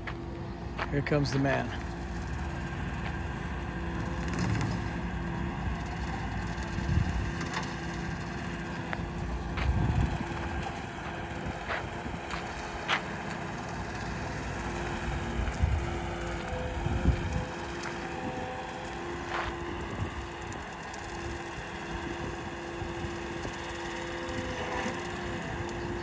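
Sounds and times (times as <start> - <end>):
skid steer weed cutter running: 0.0 - 26.0.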